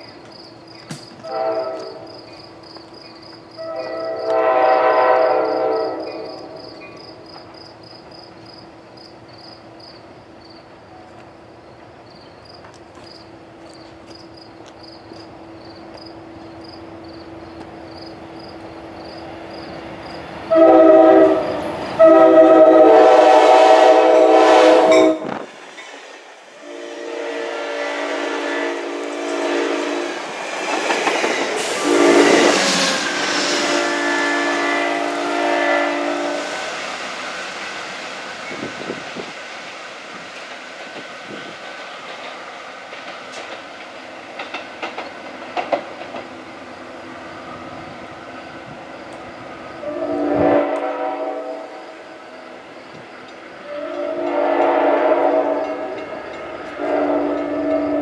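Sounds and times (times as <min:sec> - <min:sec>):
train wheels and cars rumbling: 0:00.0 - 0:58.0
locomotive air horn blasts: 0:01.2 - 0:02.1, 0:03.6 - 0:06.6, 0:20.5 - 0:25.4, 0:26.6 - 0:30.2, 0:31.6 - 0:36.5, 0:49.8 - 0:51.8, 0:53.6 - 0:56.0, 0:56.7 - 0:58.0.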